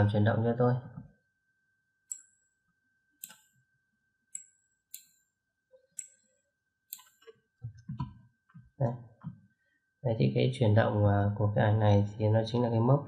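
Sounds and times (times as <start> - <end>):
computer mouse clicks: 3.2 - 3.5, 6.9 - 8.1.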